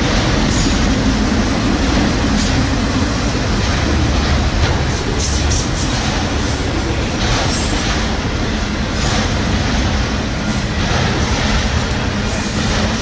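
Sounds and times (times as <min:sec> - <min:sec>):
freight train wheels on rail: 0:00.0 - 0:13.0.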